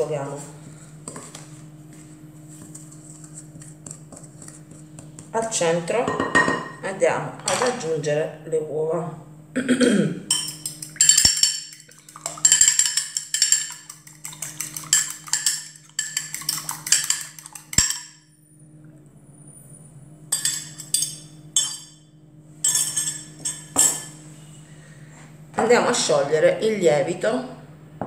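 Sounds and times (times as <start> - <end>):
fork beating eggs in glass dish: 2.6 - 5.3, 10.3 - 18.2.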